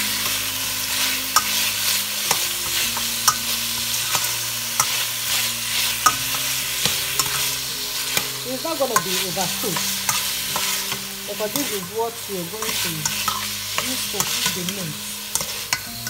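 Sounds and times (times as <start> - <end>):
vegetables sizzling in frying pan: 0.0 - 16.0
utensil clicking against pan: 4.1 - 5.0, 12.6 - 16.0.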